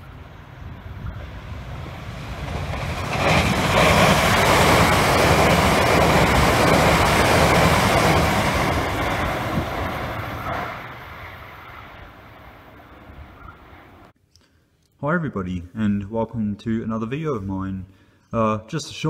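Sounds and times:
train passing on rails: 0:00.0 - 0:14.1.

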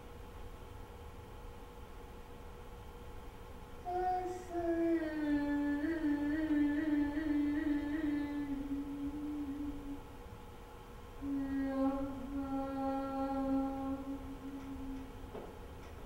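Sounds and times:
woman singing long note: 0:03.9 - 0:10.1, 0:11.2 - 0:15.1.

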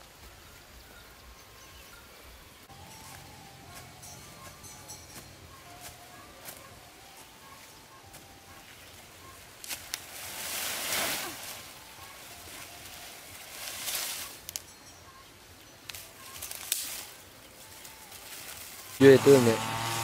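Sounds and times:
dry corn stalks rustling: 0:02.7 - 0:19.8
sharp crackles: 0:09.6 - 0:14.8, 0:15.8 - 0:19.0.

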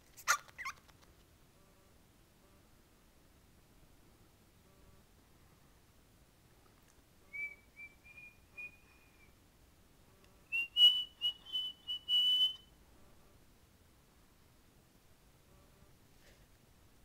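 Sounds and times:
cockatiel whistling: 0:10.5 - 0:12.7.

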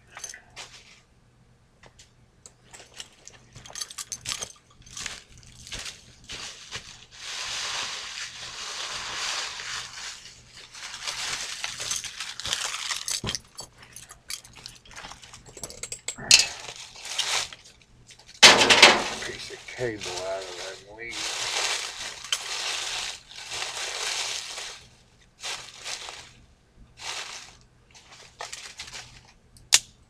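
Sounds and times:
rustling and crunching handling: 0:00.0 - 0:01.1, 0:01.8 - 0:29.8
light clicks and clinks: 0:02.5 - 0:05.6, 0:13.0 - 0:16.6.

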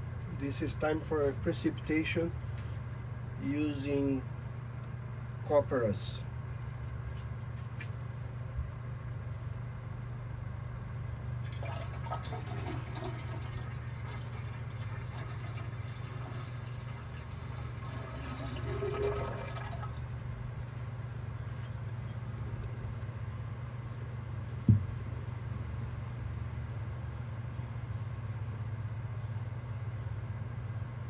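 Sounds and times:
steady low hum: 0:00.0 - 0:31.0
liquid pouring into beaker: 0:11.4 - 0:20.4
sharp knock: 0:24.7 - 0:24.9.

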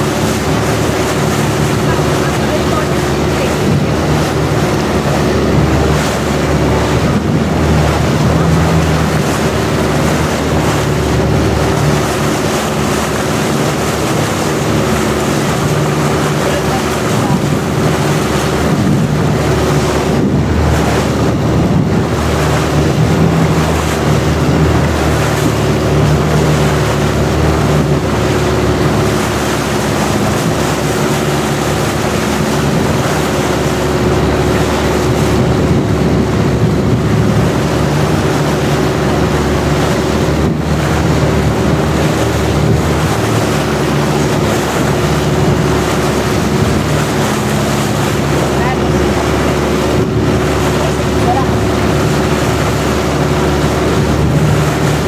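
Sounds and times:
boat engine droning: 0:00.0 - 0:55.0
water rushing: 0:00.0 - 0:55.0
wind on microphone: 0:00.0 - 0:55.0.

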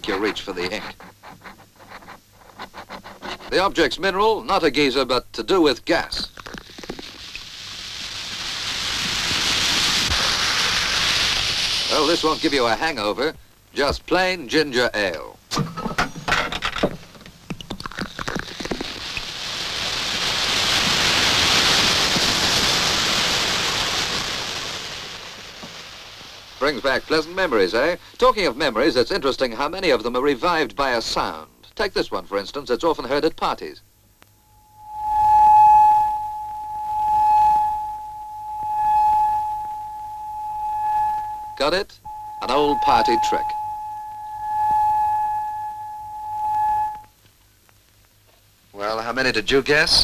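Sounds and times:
fizzing bubbles hiss: 0:06.0 - 0:14.3, 0:17.0 - 0:29.1
singing wine glass rim: 0:34.6 - 0:47.1.

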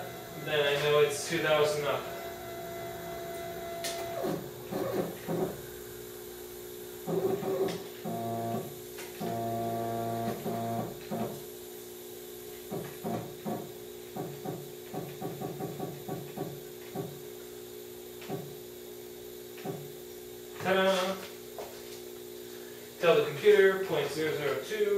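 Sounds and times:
low hum: 0:00.0 - 0:07.5
stepper motor whine: 0:00.0 - 0:11.4.

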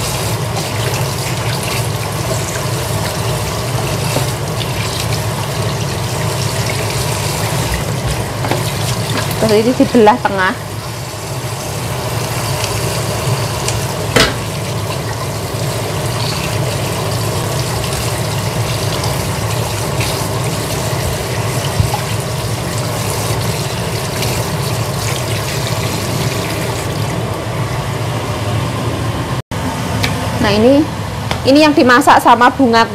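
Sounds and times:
tap running into metal sink: 0:07.6 - 0:09.5, 0:14.1 - 0:14.6, 0:21.0 - 0:22.2.

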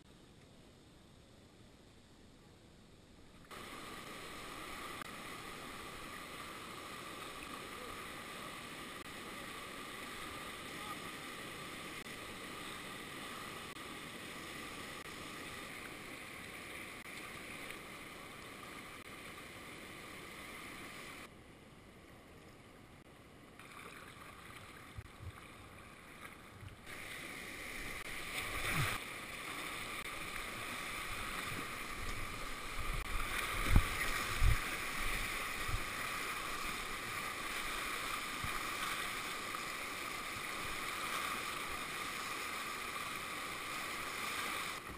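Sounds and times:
whitewater rushing: 0:26.9 - 0:44.9.

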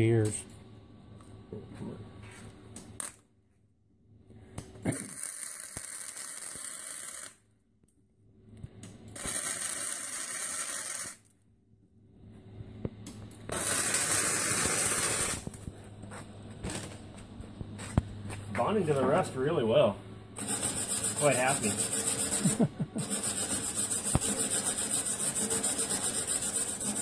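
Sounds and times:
steady low hum: 0:00.0 - 0:05.0, 0:11.4 - 0:27.0
welder arc crackling: 0:04.9 - 0:07.4, 0:09.2 - 0:11.2, 0:13.5 - 0:15.7, 0:16.6 - 0:17.0, 0:20.4 - 0:27.0.

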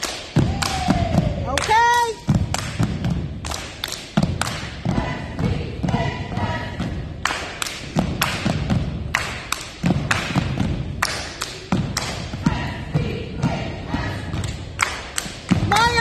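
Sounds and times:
hand claps and body slaps: 0:00.0 - 0:04.8, 0:07.2 - 0:12.3, 0:14.4 - 0:16.0
stomps on a gym floor: 0:00.2 - 0:16.0.

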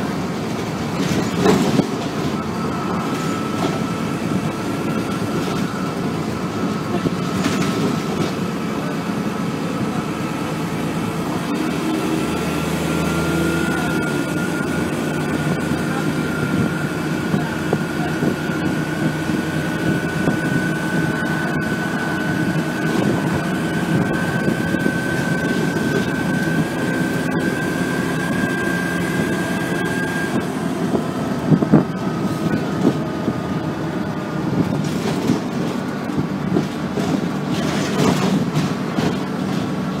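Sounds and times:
bus engine with whine: 0:00.0 - 0:40.0.

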